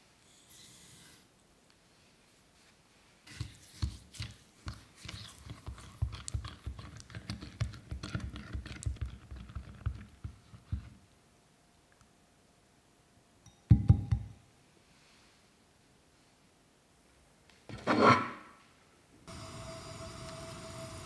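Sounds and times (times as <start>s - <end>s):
spatula stirring sauce in glass bowl: 3.3s - 10.8s.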